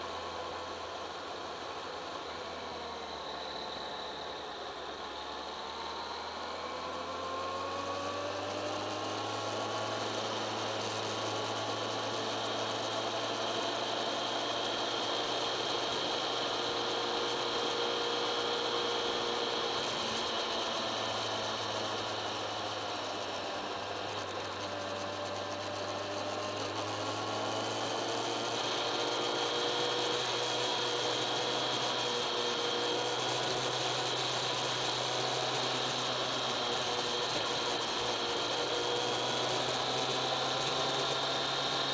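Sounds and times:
high mechanical whine: 0:00.0 - 0:41.9.

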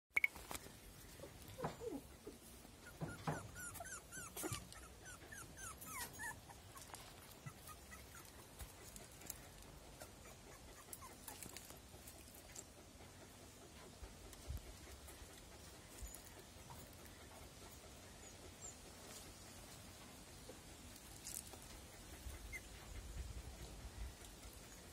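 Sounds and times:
puppies whimpering: 0:01.2 - 0:12.7, 0:21.2 - 0:24.9.

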